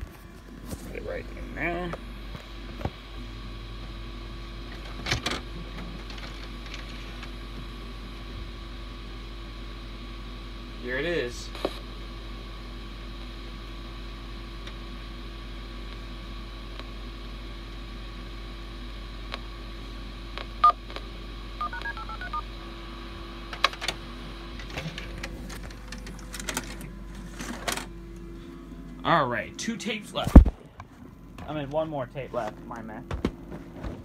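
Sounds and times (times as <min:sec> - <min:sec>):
steady hum: 0:00.0 - 0:34.0
telephone dial tones: 0:21.6 - 0:22.4.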